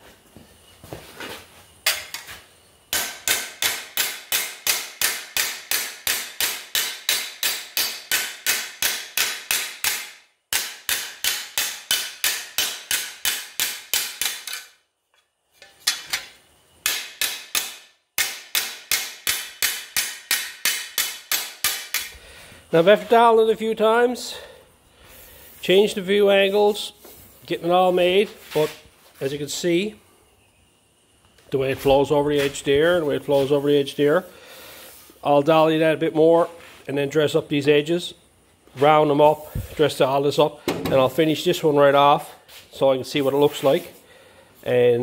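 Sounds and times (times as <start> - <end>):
hammer striking steel plate: 2.9 - 14.8, 15.6 - 22.1.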